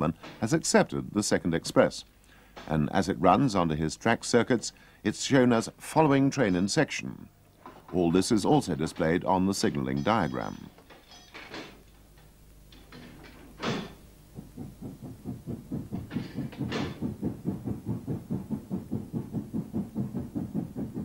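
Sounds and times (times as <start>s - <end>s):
steam locomotive exhaust beats: 12.7s - 21.0s
sharp knocks: 12.8s - 21.0s.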